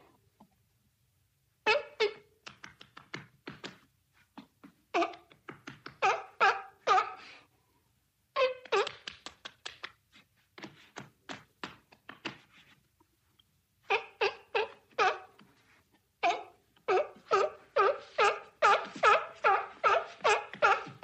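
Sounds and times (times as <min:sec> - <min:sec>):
seal barking: 0:06.0 - 0:07.4, 0:13.9 - 0:15.4, 0:16.2 - 0:21.0
seal flippers clapping: 0:08.8 - 0:10.0.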